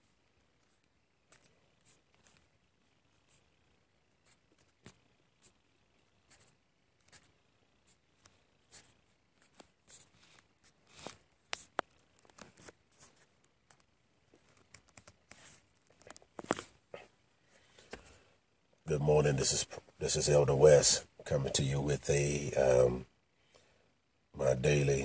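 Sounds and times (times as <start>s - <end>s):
phone being handled rustling: 9.5s - 16.8s.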